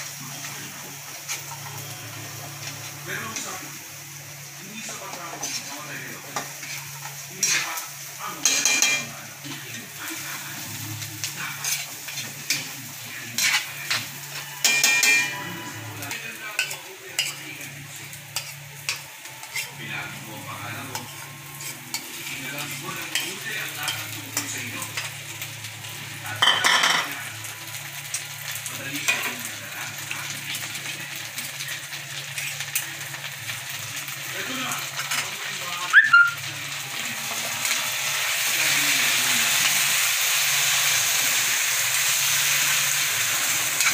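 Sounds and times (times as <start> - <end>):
tofu sizzling in a wok: 0.0 - 43.9
metal spoon scraping a pan: 5.0 - 7.8, 8.4 - 9.1, 11.2 - 17.4, 18.3 - 19.8, 20.8 - 25.2, 43.6 - 43.9.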